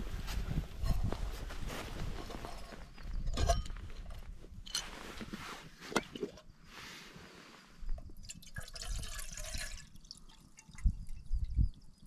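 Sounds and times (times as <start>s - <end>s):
water pouring into metal kettle: 8.2s - 11.4s.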